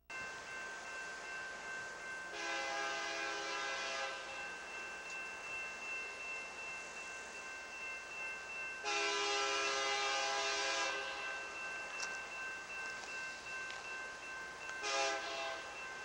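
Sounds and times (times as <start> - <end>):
locomotive air horn blasts: 2.3 - 4.4, 8.8 - 11.3, 14.8 - 15.7.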